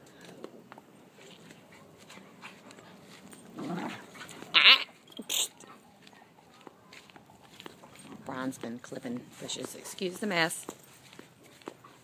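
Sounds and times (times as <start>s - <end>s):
dog growling: 3.5s - 4.8s.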